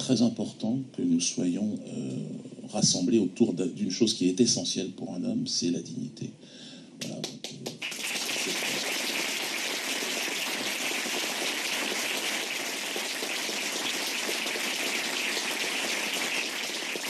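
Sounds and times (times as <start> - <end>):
audience applause: 7.6 - 17.0.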